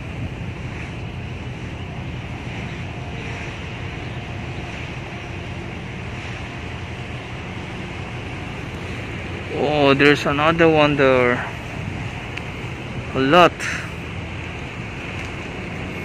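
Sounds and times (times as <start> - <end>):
ship low rumble: 0.0 - 16.0
water washing along hull: 0.0 - 16.0
wind noise on microphone: 0.0 - 16.0.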